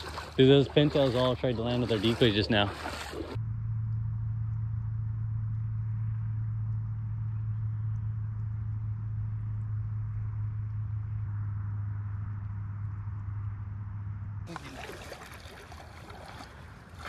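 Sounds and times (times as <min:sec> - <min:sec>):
engine running steadily: 0:00.0 - 0:17.0.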